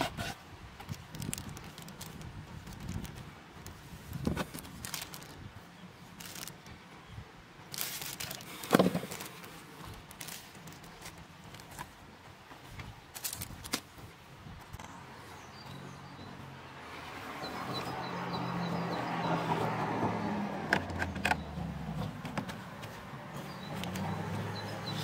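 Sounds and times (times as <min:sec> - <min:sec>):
plastic wrapping rustling: 0:00.8 - 0:06.7, 0:07.6 - 0:12.0, 0:13.1 - 0:13.9.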